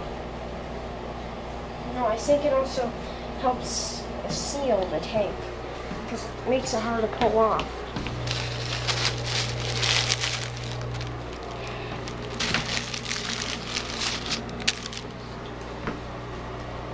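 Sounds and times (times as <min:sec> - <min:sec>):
steady low hum: 0:00.0 - 0:16.9
crackling and rustling of handling: 0:07.6 - 0:15.7.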